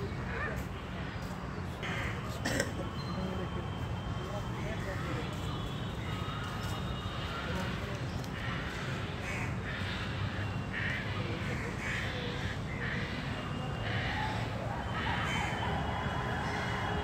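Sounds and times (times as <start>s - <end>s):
bird cawing: 8.3s - 15.6s.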